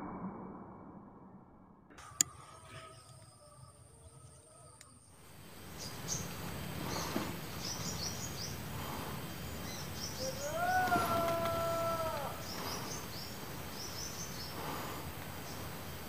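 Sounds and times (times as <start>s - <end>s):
background hiss: 2.0s - 16.0s
insects: 2.0s - 16.0s
small birds chirping: 2.0s - 16.0s
drawn-out pitched call: 5.7s - 15.1s.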